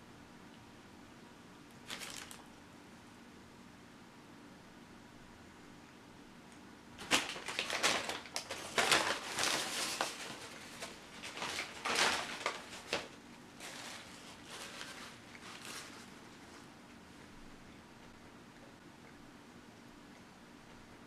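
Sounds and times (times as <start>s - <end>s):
paper bag crinkling: 1.8s - 2.5s, 7.0s - 16.6s.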